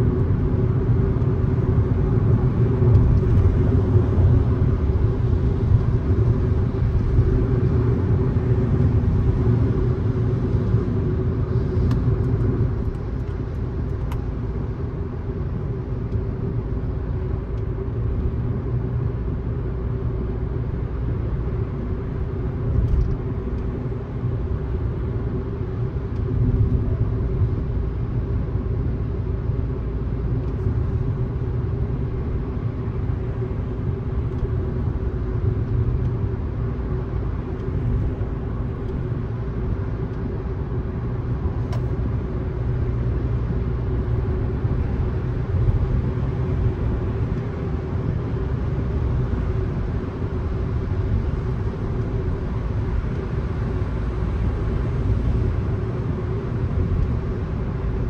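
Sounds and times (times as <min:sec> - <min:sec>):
car road and tyre noise: 0:00.0 - 0:58.0.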